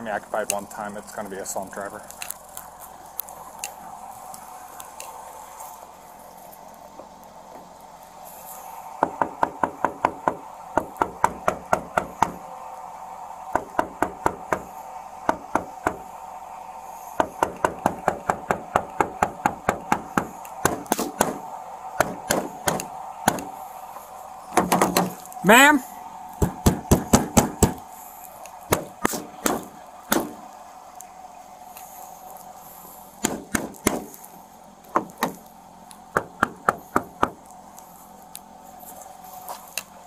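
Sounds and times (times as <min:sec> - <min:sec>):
faint steady hum: 0:00.0 - 0:40.0
knocking on car window: 0:09.0 - 0:12.4, 0:24.6 - 0:25.2, 0:33.2 - 0:34.1, 0:34.9 - 0:35.4.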